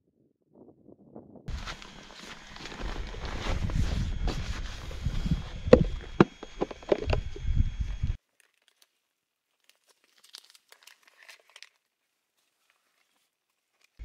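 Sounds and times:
low rumble: 1.4s - 8.2s
plastic pouch crinkling: 1.5s - 4.8s, 8.2s - 14.0s
rustling and knocking of objects: 1.5s - 7.5s.

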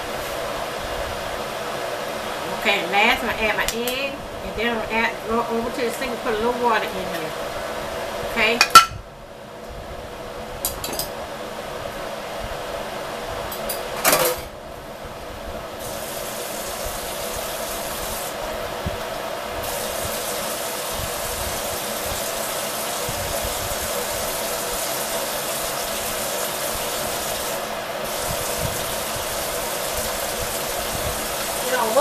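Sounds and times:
dish clinking: 8.6s - 9.0s
faucet running water: 15.8s - 18.4s, 19.6s - 32.0s.

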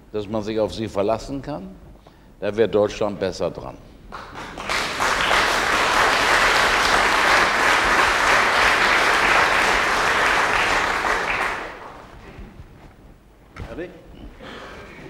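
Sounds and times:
audience applauding: 4.1s - 12.2s.

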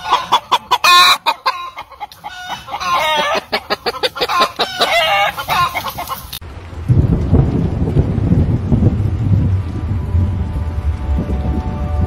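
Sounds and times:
hen clucking: 0.0s - 6.4s.

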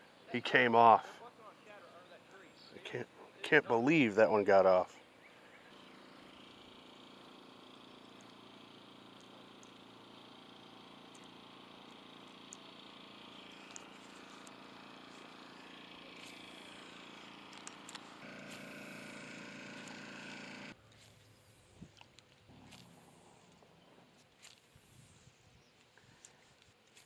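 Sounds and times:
distant boat motor humming: 0.0s - 24.7s
faint ticks: 8.0s - 8.4s, 9.1s - 10.0s, 11.0s - 12.7s.

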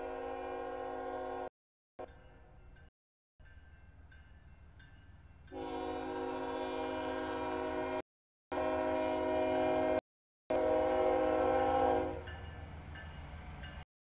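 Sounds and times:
locomotive horn chord: 0.0s - 1.5s, 5.5s - 12.3s
low train rumble: 0.0s - 8.0s, 8.6s - 13.8s.

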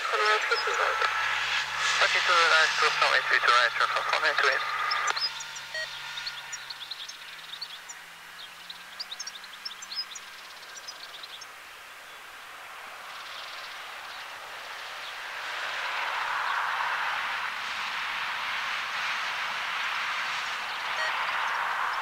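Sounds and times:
jet plane rushing noise: 0.0s - 8.3s
small birds chirping: 0.0s - 15.8s, 20.2s - 22.0s.

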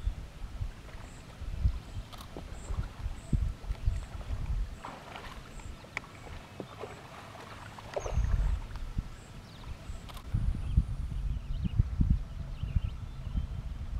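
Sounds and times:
water splashing and dripping: 2.1s - 8.9s.

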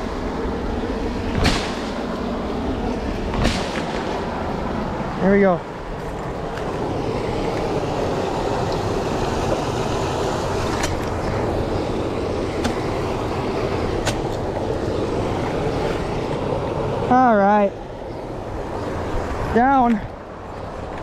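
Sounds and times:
river water rushing over rocks: 3.8s - 17.6s.

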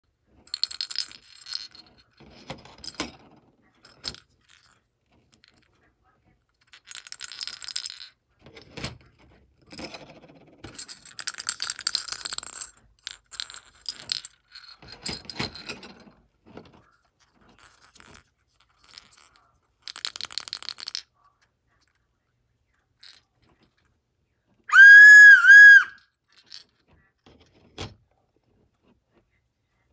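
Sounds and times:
loud high whistle blast: 24.7s - 26.0s.

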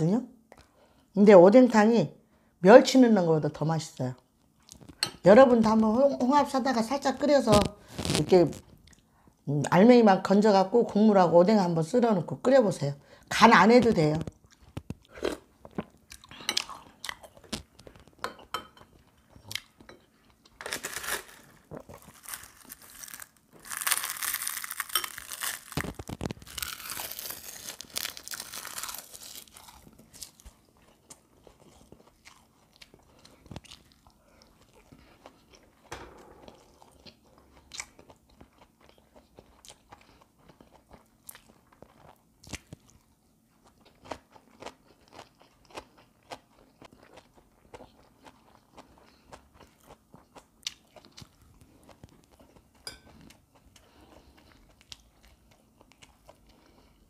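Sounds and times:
person chewing and crunching: 14.2s - 57.0s.

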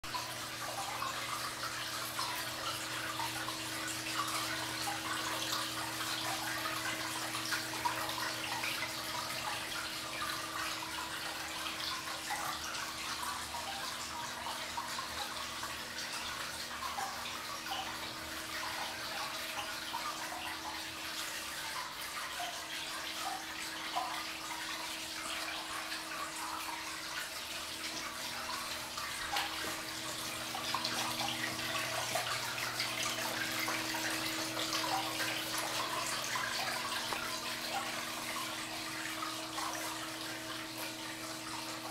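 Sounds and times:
fountain water trickling: 0.0s - 41.9s.

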